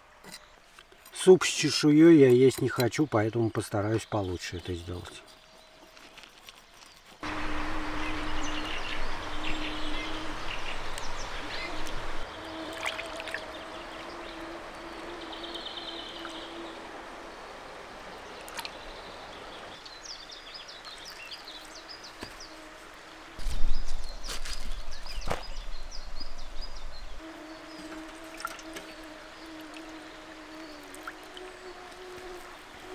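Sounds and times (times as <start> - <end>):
river rushing: 7.2 - 19.9
bird chirps: 7.3 - 12.6.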